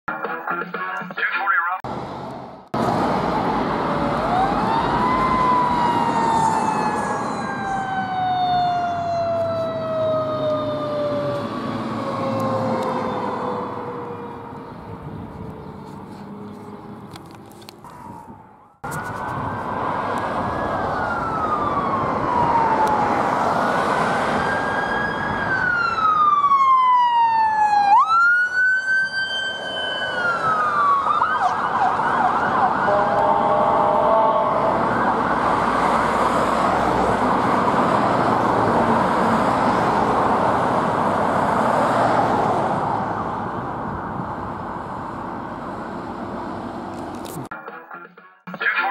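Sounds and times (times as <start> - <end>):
ambulance siren wailing and yelping: 3.4 - 15.8, 17.9 - 40.1.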